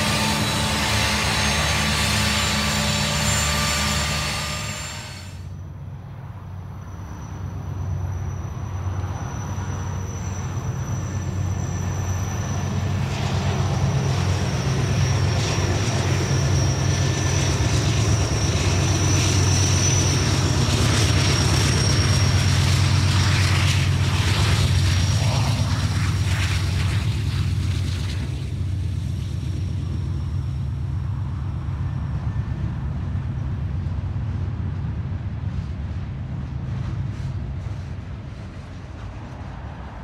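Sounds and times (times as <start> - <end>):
thin high whine: 0.0 - 5.6
locomotive engine drone: 0.0 - 40.0.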